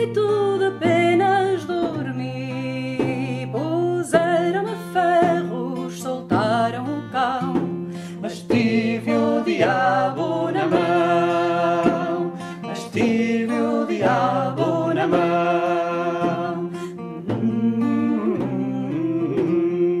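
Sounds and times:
acoustic guitar: 0.0 - 20.0
person singing long wavering notes: 8.2 - 20.0.

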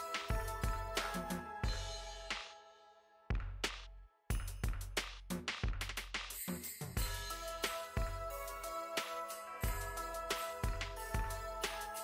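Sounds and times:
punchy drum beat: 0.0 - 2.4, 3.3 - 12.0.

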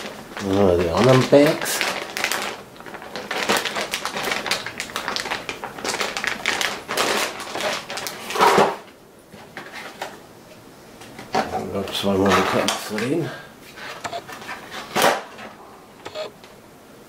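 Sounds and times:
plastic bags rustling: 0.0 - 10.1.

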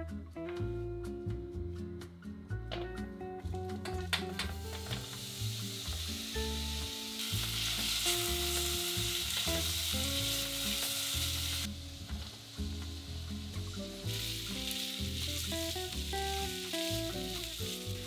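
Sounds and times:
onions sizzling in a pot: 4.4 - 18.0.

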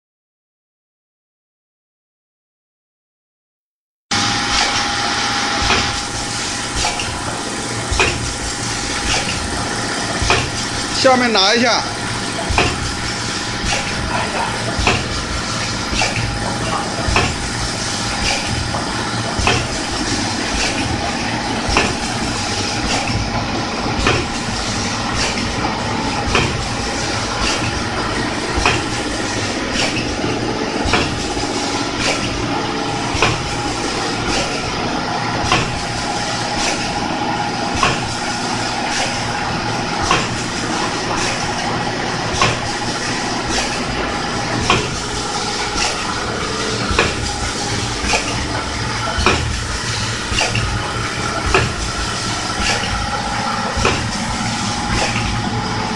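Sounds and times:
packing machine humming: 4.1 - 55.9
sealing jaws clacking: 43.4 - 55.5.

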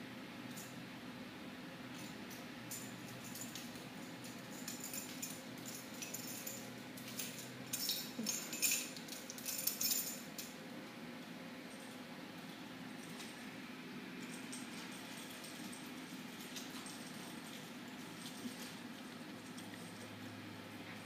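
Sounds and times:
low steady hum: 0.0 - 21.0
collar tag jingling: 2.0 - 10.6, 14.2 - 20.3.

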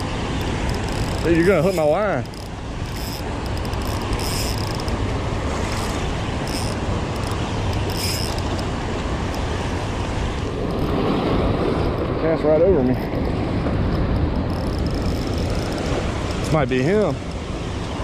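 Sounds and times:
fishing reel drag buzzing: 0.0 - 5.0, 5.6 - 8.7, 14.5 - 16.5.

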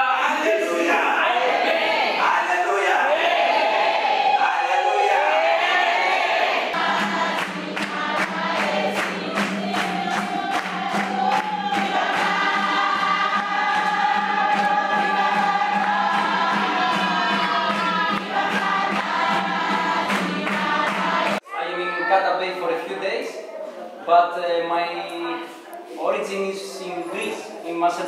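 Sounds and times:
group of voices singing: 0.0 - 21.4.

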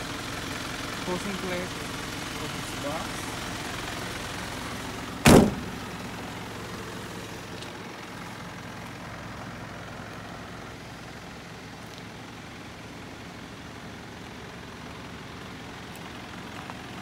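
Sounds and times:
van door slamming: 5.2 - 5.9.

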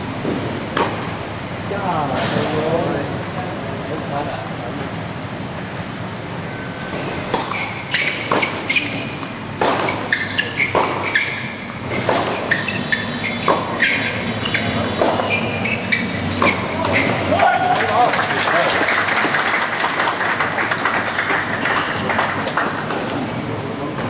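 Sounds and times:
racquets striking tennis ball: 0.2 - 1.2, 6.8 - 19.3
tennis ball bouncing: 0.2 - 1.2, 6.8 - 17.3.

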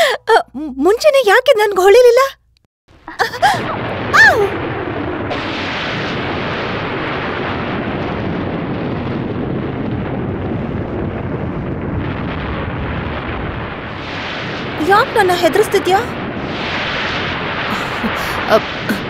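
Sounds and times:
heavy rain pouring: 3.2 - 5.4, 13.4 - 19.0
thunder rumbling: 3.2 - 19.0.

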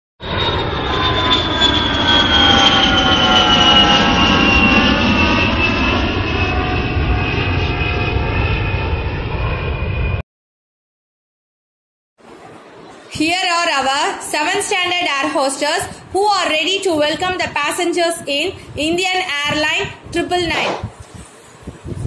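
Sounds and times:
jet engine roar and whine: 0.2 - 10.2, 12.2 - 22.0.

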